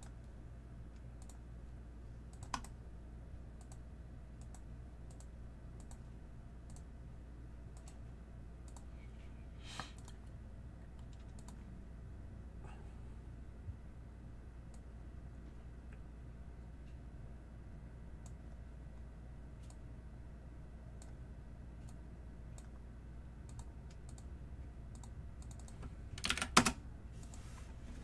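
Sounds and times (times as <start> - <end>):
low steady hum: 0.0 - 28.0
keyboard and mouse clicks: 0.9 - 1.4, 2.3 - 2.8, 3.6 - 3.8, 4.4 - 6.1, 6.7 - 6.9, 7.8 - 8.0, 8.6 - 8.9, 9.7 - 10.3, 10.9 - 11.7, 19.6 - 19.8, 23.4 - 24.3, 24.9 - 27.4.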